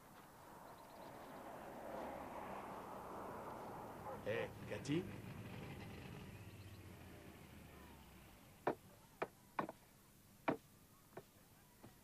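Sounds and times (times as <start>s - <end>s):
sharp knocks: 8.6s - 9.8s, 10.4s - 10.6s.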